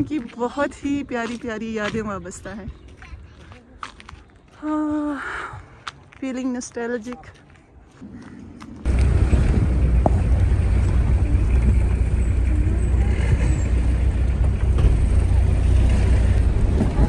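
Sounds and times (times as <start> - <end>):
car interior road rumble: 8.9 - 17.0.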